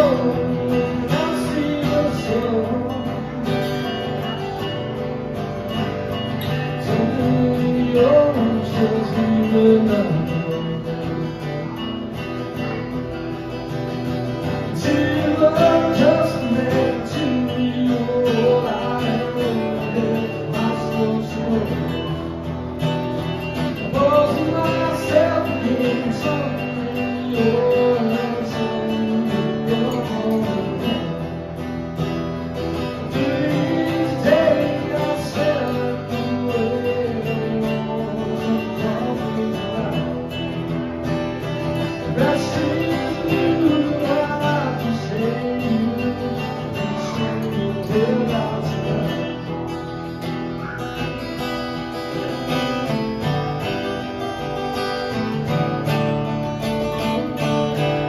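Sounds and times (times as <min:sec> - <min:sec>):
man singing: 0:00.0 - 0:04.2, 0:06.4 - 0:11.8, 0:14.4 - 0:22.4, 0:23.5 - 0:31.4, 0:32.8 - 0:40.8, 0:41.6 - 0:49.7
acoustic guitars strummed: 0:00.0 - 0:58.0.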